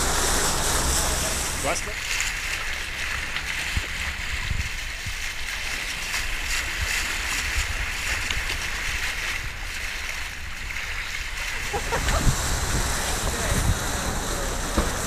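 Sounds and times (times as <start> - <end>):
low rumbling: 0.0 - 5.3, 11.6 - 15.0
sea water rushing along hull: 0.0 - 15.0.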